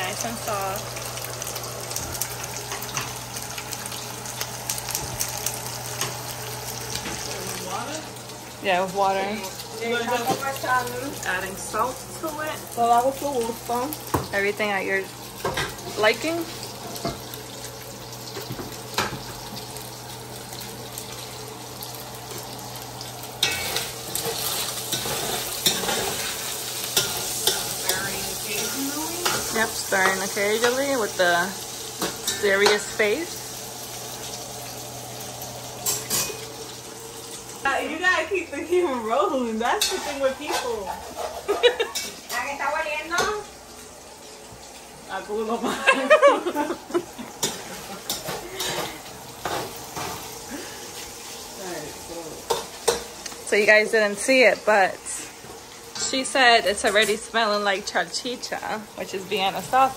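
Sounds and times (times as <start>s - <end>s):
food sizzling in a pot: 0.0s - 59.9s.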